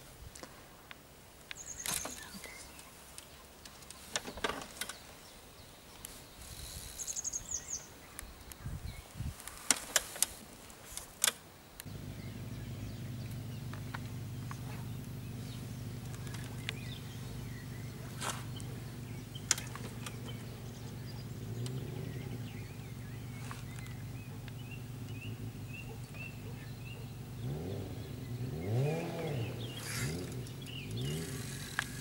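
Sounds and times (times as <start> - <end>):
small birds chirping: 1.4 - 32.0
steady low hum: 11.8 - 32.0
sharp clicks: 19.4 - 20.4.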